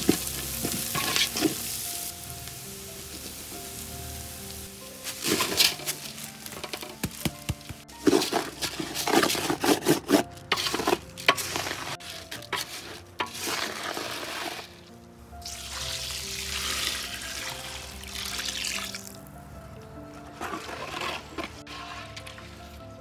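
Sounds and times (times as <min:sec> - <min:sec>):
rice scraping against metal pot: 0:00.0 - 0:02.1, 0:05.0 - 0:14.9, 0:20.3 - 0:22.8
light sizzle: 0:00.0 - 0:09.2, 0:10.5 - 0:19.8
background music: 0:00.0 - 0:23.0
liquid pouring: 0:15.4 - 0:19.2.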